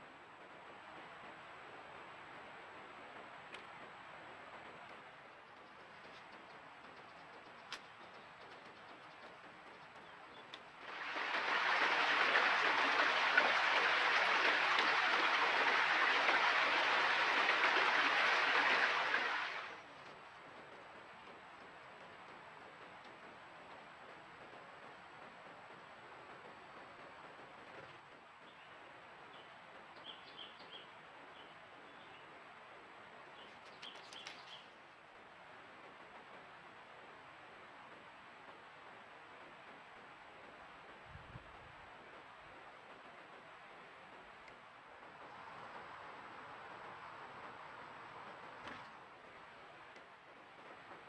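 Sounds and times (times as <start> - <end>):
steady hiss: 0.0 - 51.0
faint clicks: 3.4 - 3.8, 4.8 - 10.8, 23.0 - 23.2, 44.4 - 44.6
steady rushing noise: 10.6 - 21.2.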